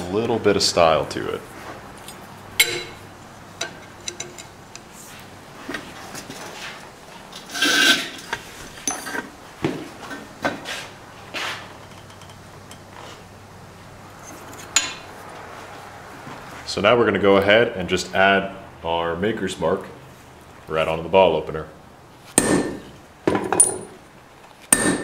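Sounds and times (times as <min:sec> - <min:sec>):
tongs clinking on metal: 0:02.0 - 0:03.0.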